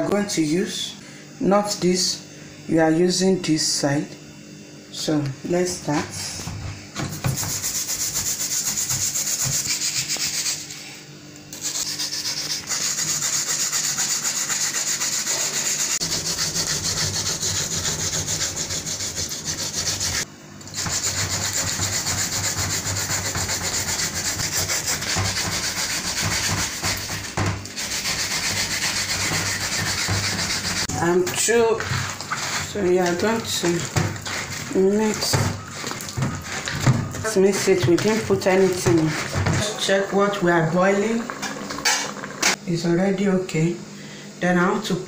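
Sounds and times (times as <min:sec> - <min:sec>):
yam grated on plastic grater: 0:20.8 - 0:31.0, 0:31.6 - 0:39.7.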